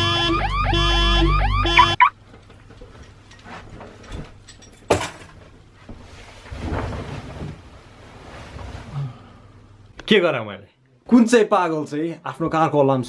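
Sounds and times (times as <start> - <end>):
bedding rustling: 5.4 - 9.5.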